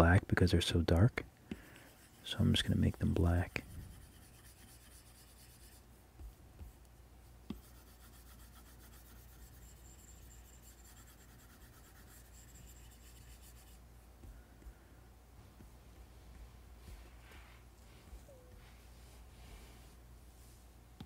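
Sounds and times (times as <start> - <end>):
stylus scratching on screen: 1.5 - 6.8, 7.5 - 13.9.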